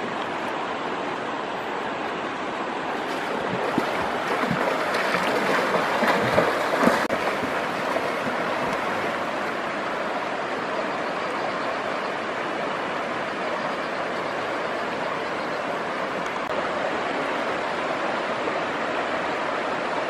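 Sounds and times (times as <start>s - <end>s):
river rushing: 0.0s - 20.0s
person splashing through water: 3.0s - 9.2s.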